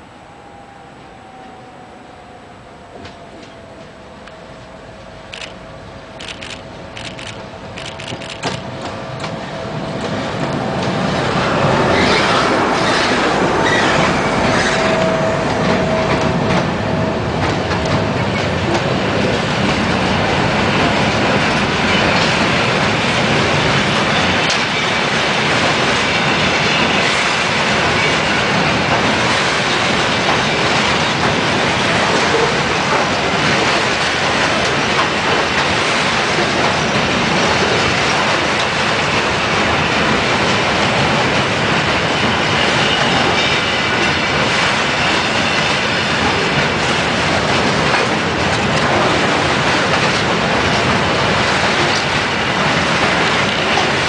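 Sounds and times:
freight train wheels on rails: 0:00.0 - 0:54.0
wheels clacking over rail joints: 0:12.0 - 0:54.0.

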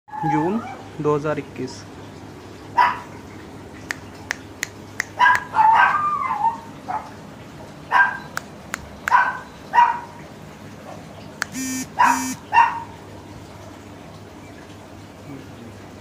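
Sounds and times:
puppy yelping barks: 0:02.8 - 0:03.1, 0:05.0 - 0:07.2, 0:07.9 - 0:08.4, 0:09.0 - 0:10.2, 0:11.4 - 0:13.0.

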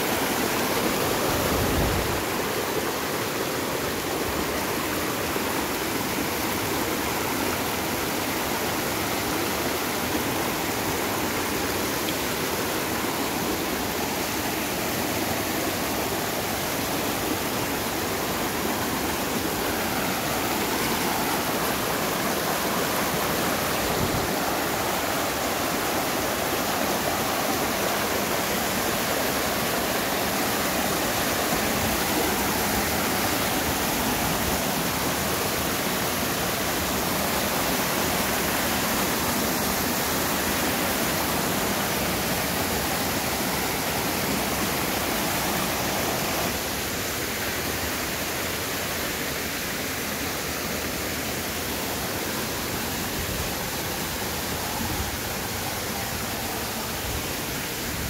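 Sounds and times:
stream rushing over boulders: 0:00.0 - 0:58.0.

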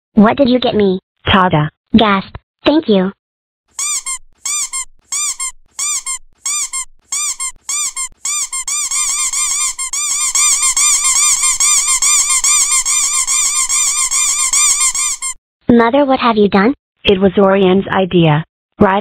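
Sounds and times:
squeaky toy squeaking: 0:03.7 - 0:15.4.

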